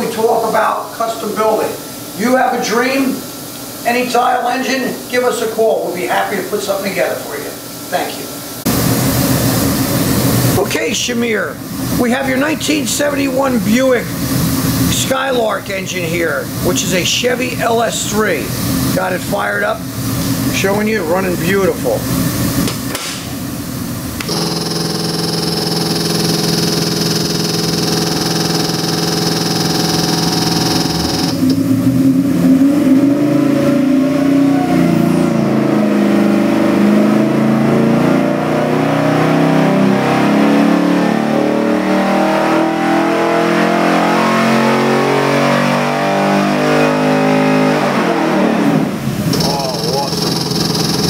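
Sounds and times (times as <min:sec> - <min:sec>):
engine idling: 0:24.2 - 0:31.6, 0:49.3 - 0:51.0
engine revving at full throttle: 0:24.2 - 0:51.0.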